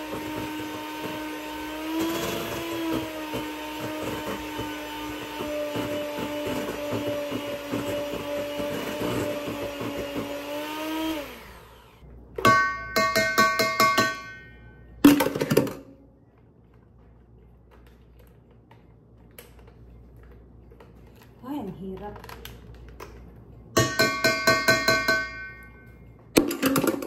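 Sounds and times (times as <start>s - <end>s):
electric mixer running: 0.0s - 12.0s
beaters tapping metal bowl: 12.4s - 14.5s, 23.8s - 25.8s.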